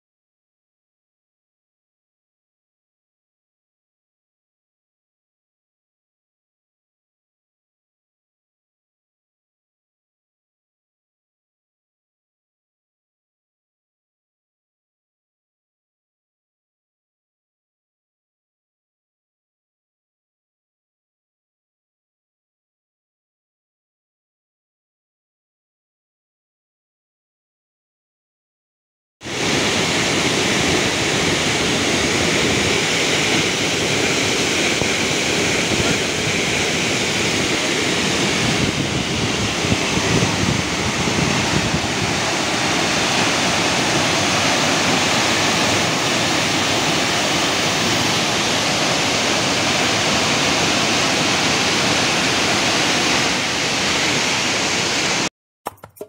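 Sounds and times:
waterfall rushing: 29.2s - 55.3s.

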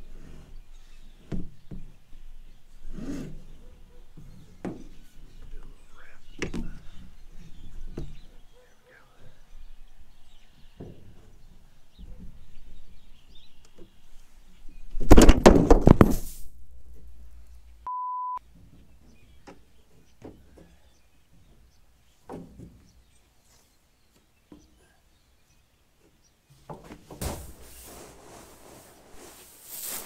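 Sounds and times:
censor beep: 17.9s - 18.4s.

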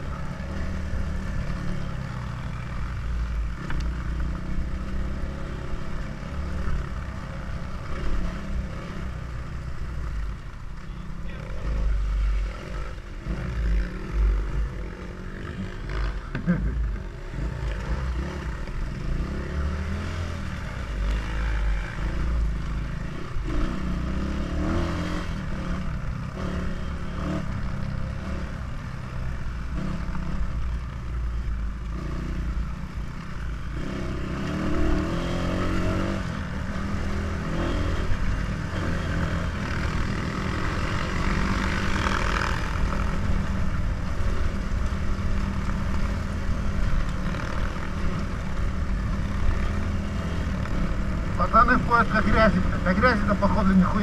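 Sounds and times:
dirt bike engine revving: 11.3s - 30.6s, 33.6s - 54.0s.

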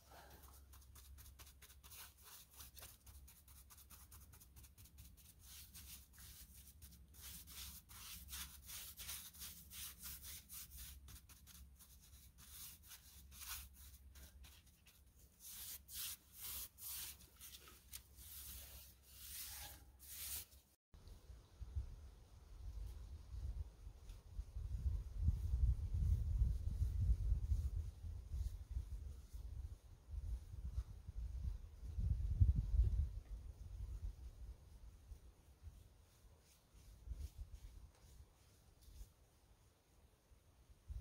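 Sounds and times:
paintbrush scrubbing wood: 0.1s - 20.8s.

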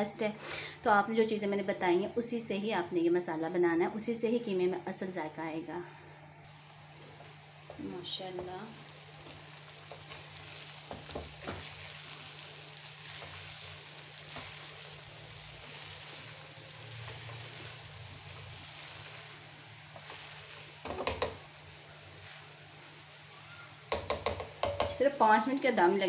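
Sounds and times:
meat sizzling in a frying pan: 6.5s - 26.0s
spatula scraping pan: 9.2s - 21.5s
spatula clattering against pan: 23.9s - 25.0s.

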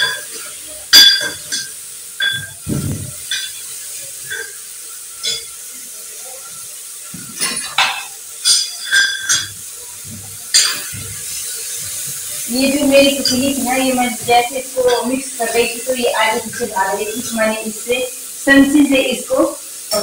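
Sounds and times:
faint sizzle: 0.0s - 20.0s
spoon clinking in metal pot: 0.9s - 2.6s, 7.4s - 9.6s.

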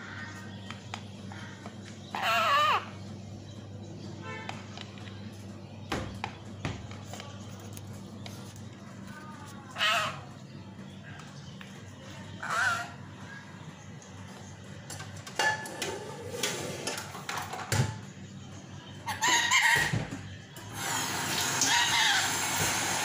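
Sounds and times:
parakeet squawking: 1.3s - 3.1s, 9.6s - 10.5s, 12.3s - 13.4s, 19.0s - 20.0s, 21.4s - 22.7s.

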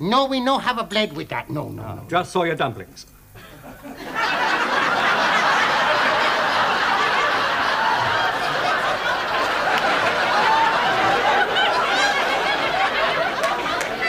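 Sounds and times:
crowd laughing: 3.4s - 14.0s.

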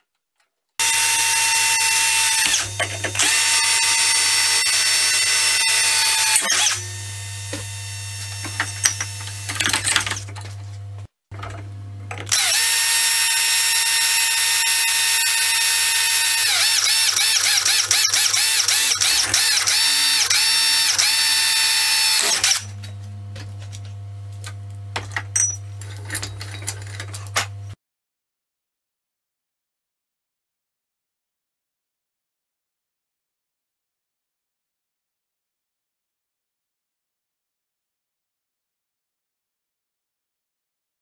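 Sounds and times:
drill whining into metal: 0.8s - 10.4s, 12.2s - 22.8s.

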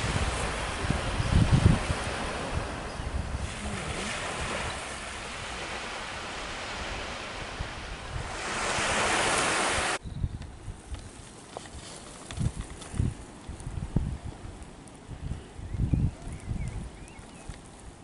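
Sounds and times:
small waves breaking on beach: 0.0s - 10.0s
wind buffeting microphone: 0.0s - 11.4s, 12.2s - 18.0s.

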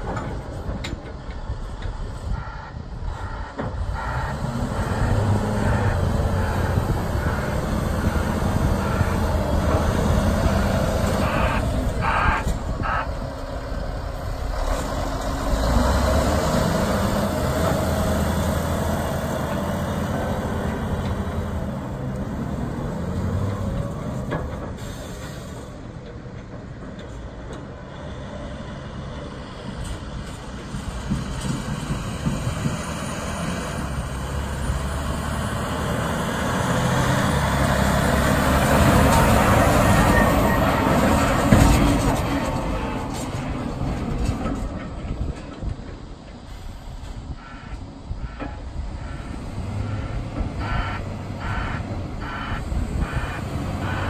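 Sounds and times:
diesel truck engine revving: 1.4s - 25.7s, 27.8s - 45.3s, 47.2s - 54.0s.

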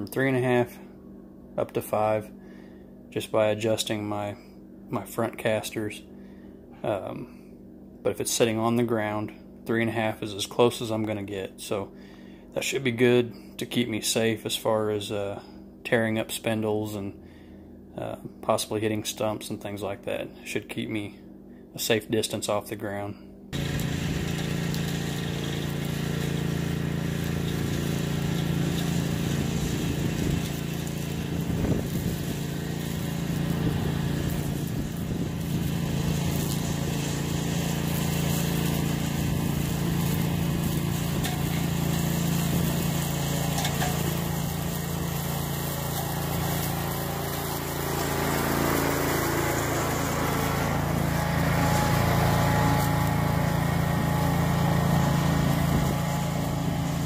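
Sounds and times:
mower engine running: 23.6s - 57.0s.

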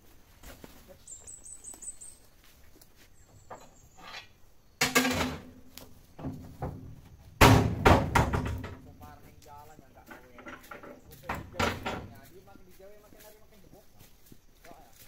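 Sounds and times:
bird chirping: 0.8s - 4.8s
rubber slabs thudding into steel truck bed: 6.2s - 8.8s.

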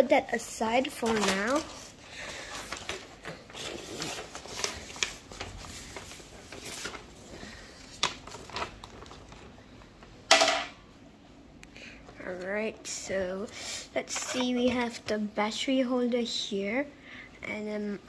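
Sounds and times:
paper rustling and crinkling: 0.8s - 10.0s.

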